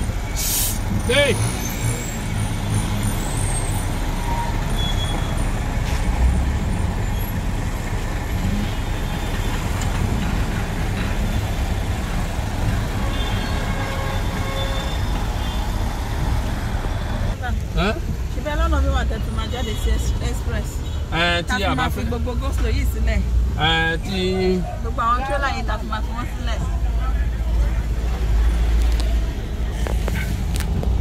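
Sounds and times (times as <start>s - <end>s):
truck diesel engines rumbling: 0.0s - 31.0s.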